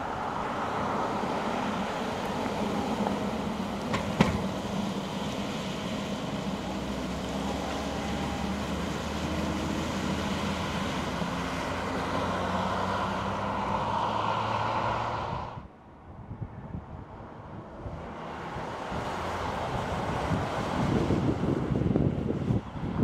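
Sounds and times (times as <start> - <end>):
car driving past: 0.0 - 15.7.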